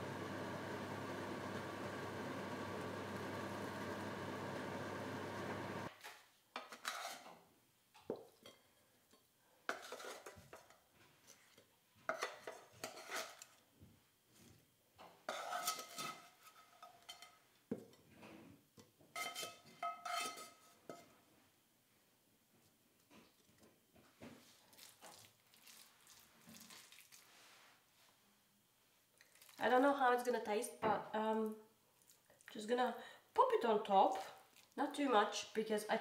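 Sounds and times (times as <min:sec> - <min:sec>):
blender motor running: 0:00.0 - 0:05.9.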